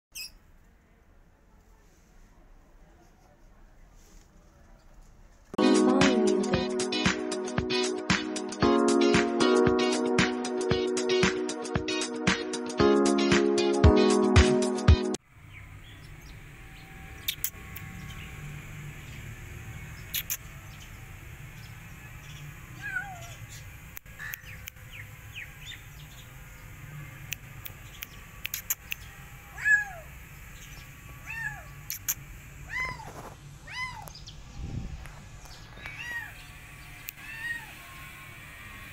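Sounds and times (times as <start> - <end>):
low background hum: 15.3 - 38.9
sharp clicks: 17.2 - 17.9, 20.1 - 20.4, 27.3 - 29.1, 31.9 - 32.2
kittens meowing: 22.8 - 23.4, 29.5 - 30.1, 31.2 - 34.2, 35.8 - 38.0.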